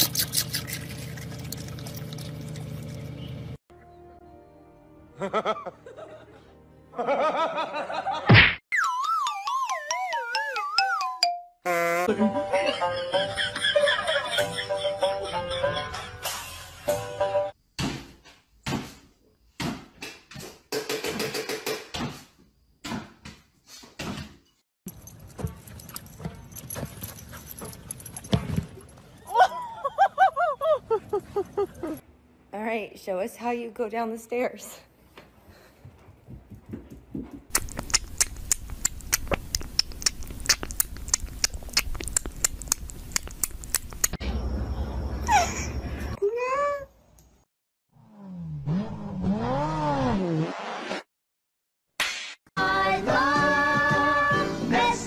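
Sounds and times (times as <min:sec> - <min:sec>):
sharp clicks and taps: 0:37.5 - 0:44.2.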